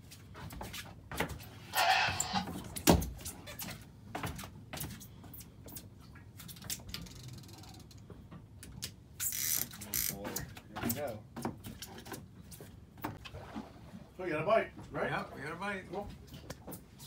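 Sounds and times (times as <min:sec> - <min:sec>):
fishing reel clicking: 0:07.0 - 0:08.0, 0:09.2 - 0:10.2.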